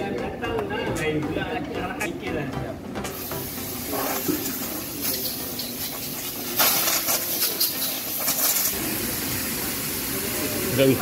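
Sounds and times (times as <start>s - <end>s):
hissing spray bursts: 6.4s - 9.8s.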